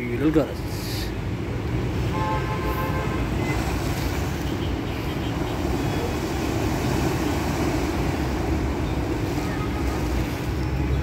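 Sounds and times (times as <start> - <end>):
surf washing against concrete blocks: 2.9 - 11.0.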